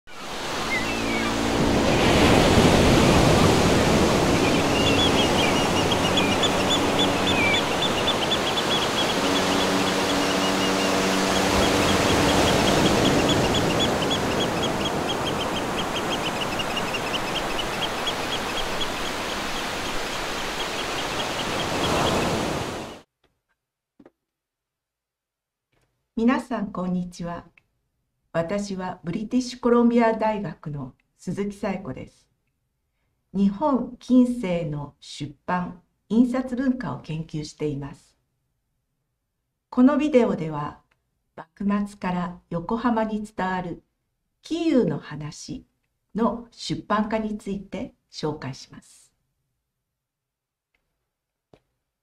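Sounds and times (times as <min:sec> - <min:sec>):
high chirping: 0:00.1 - 0:02.2, 0:04.2 - 0:23.0
ocean surf washing: 0:00.1 - 0:23.0.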